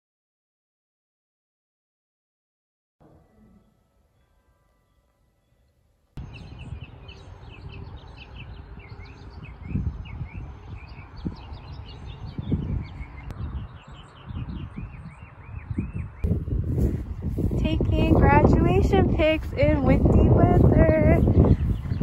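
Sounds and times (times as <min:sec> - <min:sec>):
small birds chirping: 0:06.2 - 0:22.0
wind buffeting microphone: 0:06.2 - 0:22.0.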